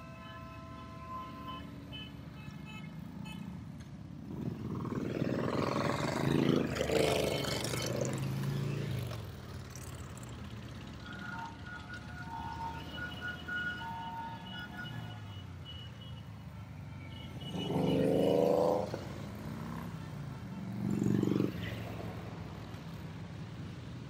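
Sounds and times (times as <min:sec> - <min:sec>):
motorcycles riding past: 0:04.1 - 0:13.7, 0:17.3 - 0:24.0.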